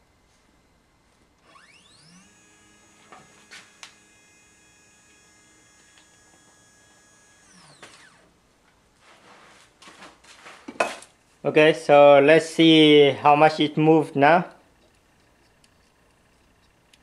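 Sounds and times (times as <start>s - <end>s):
stepper motor whine: 1.4s - 8.5s.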